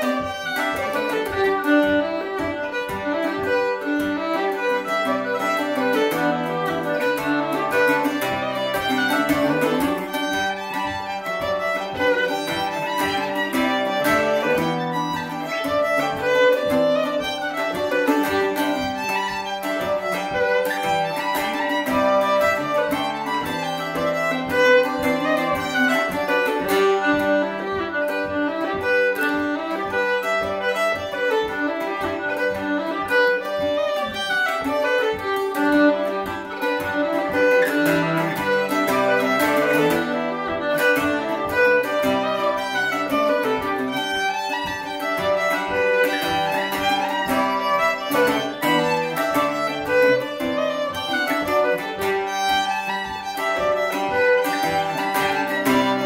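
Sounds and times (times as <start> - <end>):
fiddle playing lively folk tune: 0.0 - 56.0
strummed mandolin: 0.0 - 56.0.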